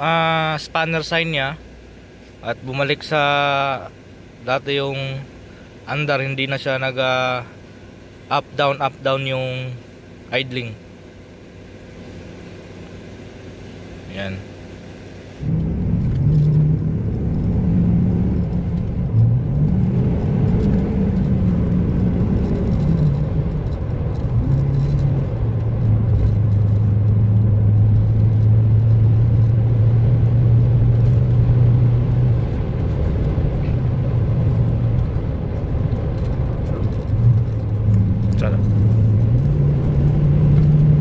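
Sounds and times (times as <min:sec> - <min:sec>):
road noise inside cab: 0:00.0 - 0:41.0
truck engine accelerating: 0:14.7 - 0:41.0.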